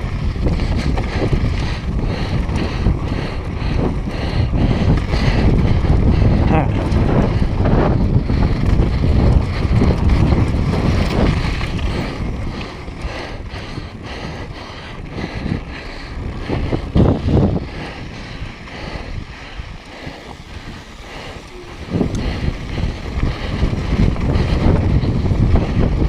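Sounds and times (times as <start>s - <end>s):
wind buffeting microphone: 0.0s - 26.0s
tyres rolling over gravel: 7.9s - 13.7s, 15.9s - 26.0s.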